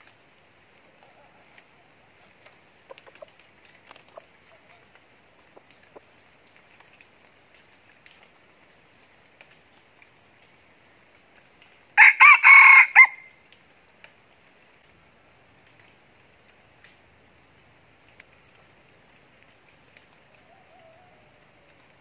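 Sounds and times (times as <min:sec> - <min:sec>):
rooster crowing: 0:12.0 - 0:13.3, 0:20.4 - 0:21.8.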